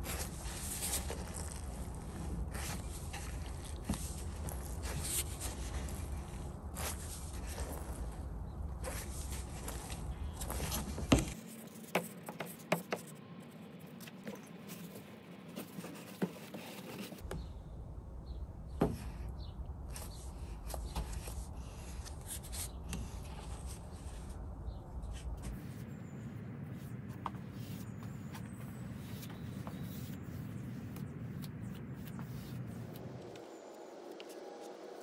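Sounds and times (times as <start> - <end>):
brush wiping on paper towel: 0.0 - 8.1, 29.0 - 33.1
paintbrush dabbing and scraping: 0.0 - 17.2, 25.1 - 34.9.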